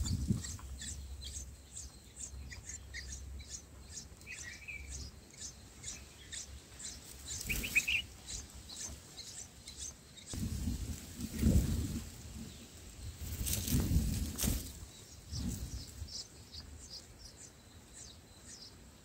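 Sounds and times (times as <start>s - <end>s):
nestlings cheeping: 0.0s - 10.4s
lower bird chirps: 0.0s - 19.0s
bird wings fluttering: 7.4s - 8.0s, 13.2s - 15.8s.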